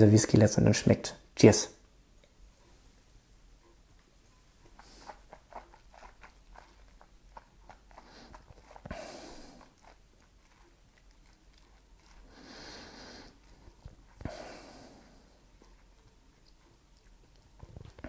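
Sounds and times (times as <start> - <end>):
wet lip and tongue clicks: 4.7 - 12.7, 15.6 - 18.0.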